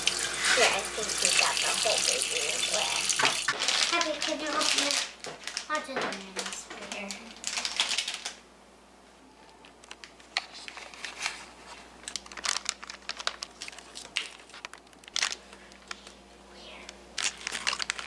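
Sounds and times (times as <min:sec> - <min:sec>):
plastic packaging crinkling: 0:00.2 - 0:08.4, 0:09.6 - 0:16.2, 0:17.1 - 0:18.0
scissors cutting wrapper: 0:03.4 - 0:08.4, 0:17.2 - 0:18.0.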